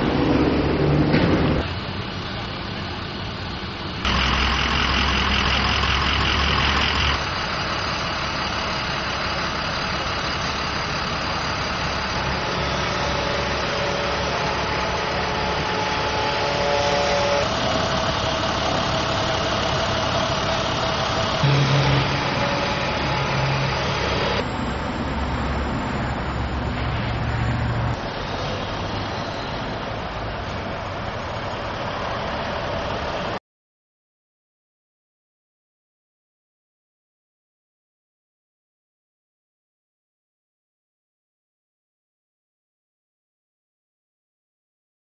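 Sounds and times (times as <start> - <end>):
road noise: 0.0 - 33.4
vehicle engines idling: 0.0 - 33.4.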